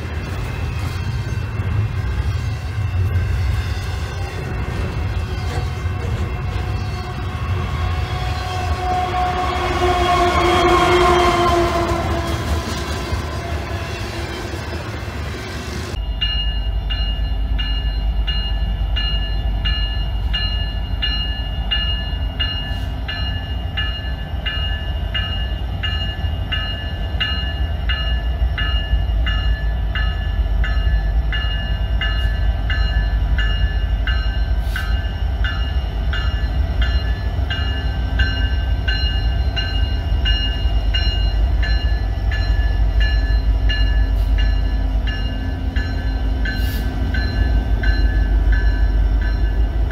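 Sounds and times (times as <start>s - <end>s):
diesel locomotives rumbling: 0.0s - 49.9s
locomotive bell ringing: 15.9s - 49.9s.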